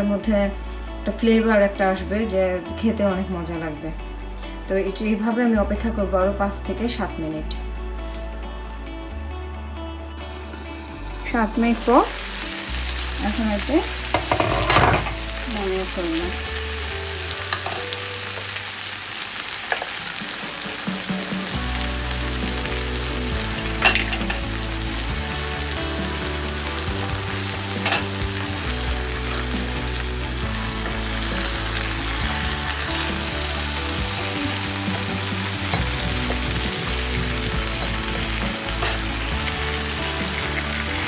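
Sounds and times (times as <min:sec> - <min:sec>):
chicken sizzling in a frying pan: 0:10.4 - 0:41.0.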